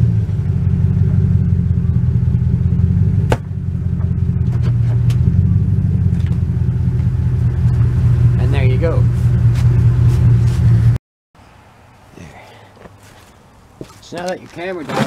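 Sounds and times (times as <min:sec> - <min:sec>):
truck engine low rumble: 0:00.0 - 0:11.0.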